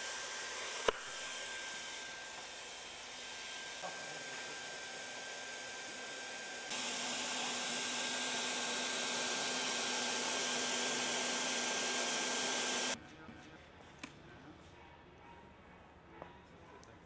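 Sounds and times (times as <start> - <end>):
hot-air blower hissing: 0.0 - 13.0.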